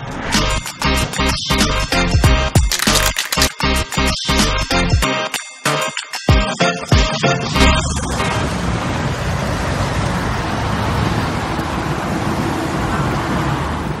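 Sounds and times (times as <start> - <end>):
road traffic: 0.0 - 4.2, 7.2 - 14.0.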